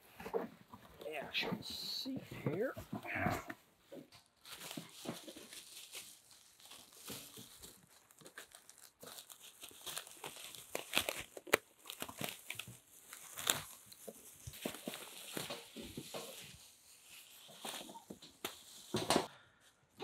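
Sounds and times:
plastic bag crinkling: 4.4s - 19.0s.

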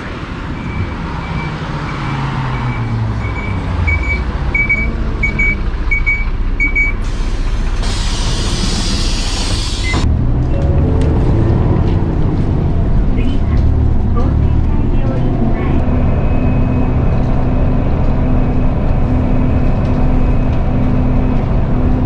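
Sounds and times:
diesel bus engine running: 0.0s - 22.0s
short beeps: 0.6s - 7.0s
pneumatic air hiss: 7.0s - 10.0s.

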